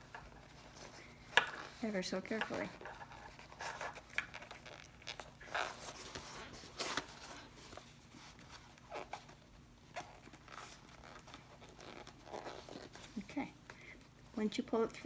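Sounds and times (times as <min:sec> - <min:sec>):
vinyl strap sliding scrapes: 0:02.6 - 0:13.2.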